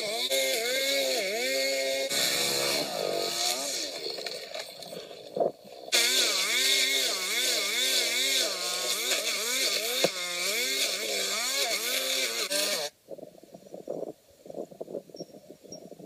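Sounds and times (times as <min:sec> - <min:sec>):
string trimmer engine running: 0:00.0 - 0:05.0, 0:05.9 - 0:12.9.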